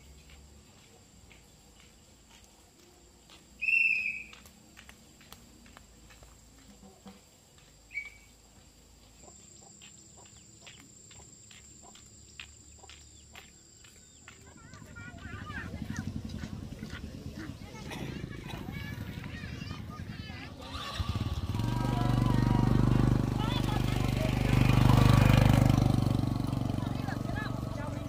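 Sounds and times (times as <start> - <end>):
high insect drone: 3.3 - 15.7
bird call: 3.6 - 4.4, 7.9 - 8.4.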